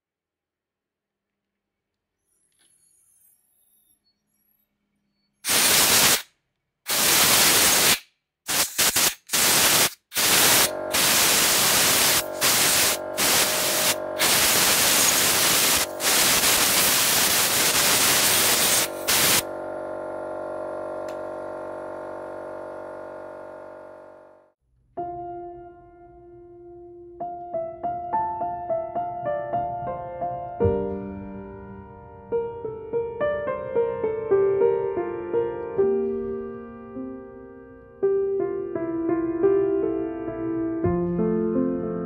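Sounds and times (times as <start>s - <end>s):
loud hiss bursts: 5.4s - 6.3s, 6.9s - 19.5s
piano music: 11.9s - 16.2s, 25.0s - 42.0s.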